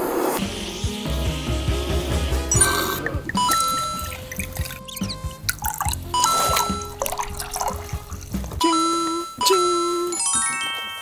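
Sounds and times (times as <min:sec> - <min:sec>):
background music: 0:00.4 - 0:11.0
liquid pouring into glasses: 0:02.6 - 0:08.8.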